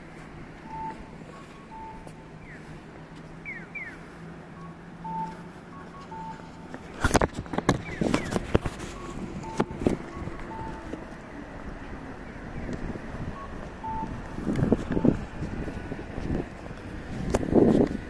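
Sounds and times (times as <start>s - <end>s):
electronic cuckoo crossing signal: 0.6s - 2.7s, 3.4s - 6.7s, 7.8s - 11.0s, 13.3s - 15.2s
wind buffeting microphone: 6.9s - 18.0s.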